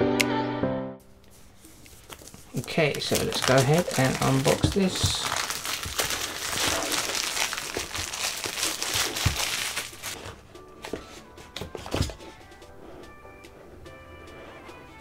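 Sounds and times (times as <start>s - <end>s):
plastic wrap crinkling: 1.4s - 10.4s
quiet background music: 2.6s - 15.0s.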